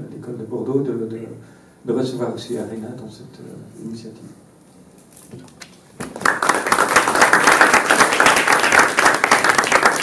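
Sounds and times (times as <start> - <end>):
audience applauding: 6.0 - 10.0.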